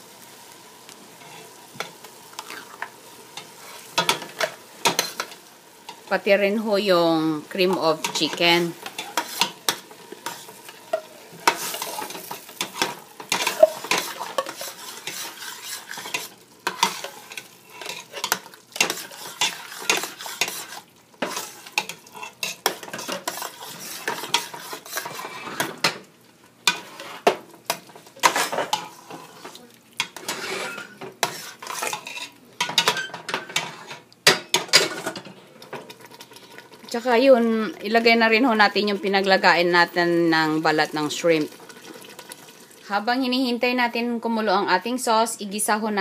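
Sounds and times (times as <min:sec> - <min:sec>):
metal spoon scraping a pot: 0:07.8 - 0:25.8, 0:26.6 - 0:27.3, 0:28.2 - 0:34.0.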